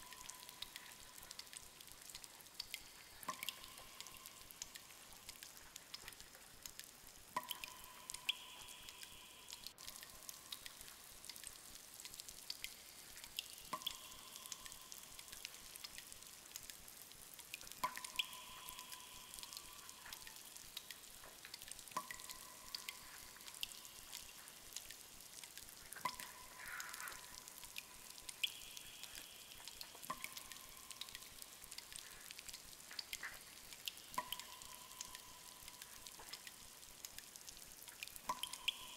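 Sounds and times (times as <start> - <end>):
faint hiss: 0.0 - 38.9
small ticks: 0.0 - 38.9
water drops plinking: 2.6 - 6.2, 7.4 - 10.8, 12.5 - 16.0, 17.8 - 21.0, 22.0 - 24.7, 26.0 - 32.0, 33.0 - 36.6, 38.2 - 38.9.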